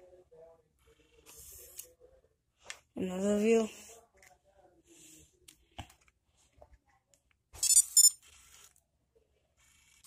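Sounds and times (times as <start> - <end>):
camera double beep: 7.6 - 8.2.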